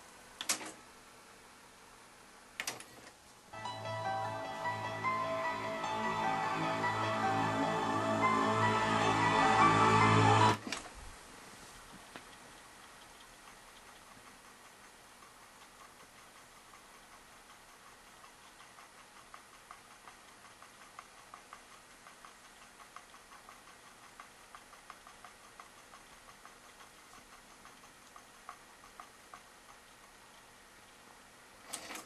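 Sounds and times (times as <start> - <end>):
low steady hiss: 0.0 - 32.0
faint regular ticking: 11.9 - 31.6.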